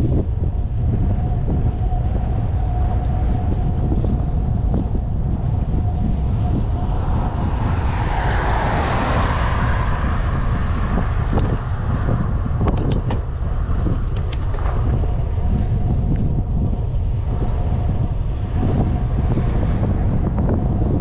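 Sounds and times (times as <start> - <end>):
wind buffeting microphone: 0.0 - 21.0
loud rushing sound: 6.0 - 21.0.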